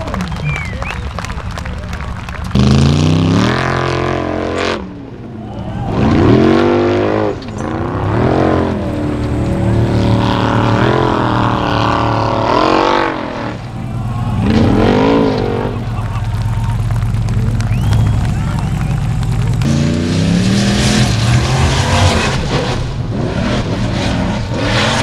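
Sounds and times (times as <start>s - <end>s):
buggy engines revving hard: 0.0s - 25.0s.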